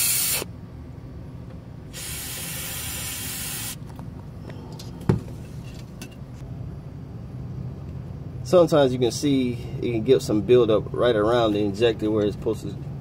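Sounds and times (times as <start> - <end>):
aerosol can spraying: 0.0 - 0.4, 2.0 - 3.8.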